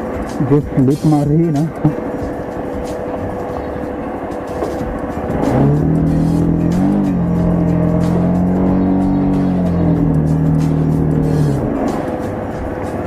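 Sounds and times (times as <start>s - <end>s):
motorcycle engine revving: 4.5s - 13.0s.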